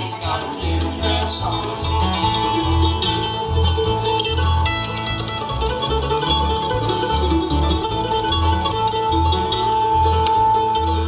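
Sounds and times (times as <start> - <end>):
acoustic guitar: 0.0 - 11.0
banjo: 0.0 - 11.0
mandolin: 0.0 - 11.0
upright bass notes: 0.0 - 11.0.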